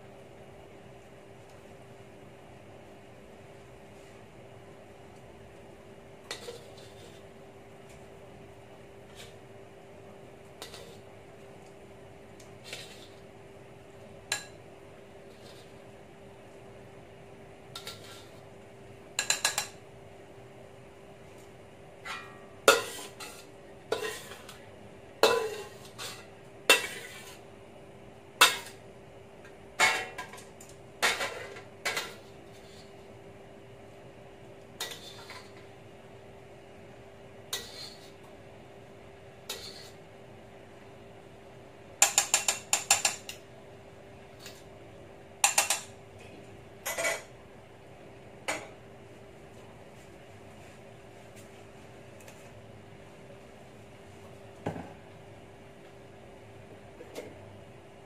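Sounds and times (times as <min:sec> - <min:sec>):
faint steady hum: 0:00.0 - 0:58.0
metal spatula scraping a wok: 0:06.3 - 0:07.3, 0:10.6 - 0:11.0, 0:12.6 - 0:13.2, 0:15.3 - 0:15.8, 0:17.8 - 0:18.4, 0:22.1 - 0:24.5, 0:25.3 - 0:27.4, 0:34.8 - 0:35.6, 0:37.5 - 0:38.2, 0:39.5 - 0:40.0.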